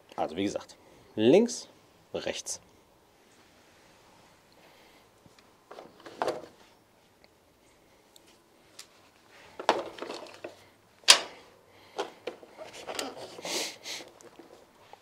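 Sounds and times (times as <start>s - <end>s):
scraping rustle: 12.3s - 15.0s.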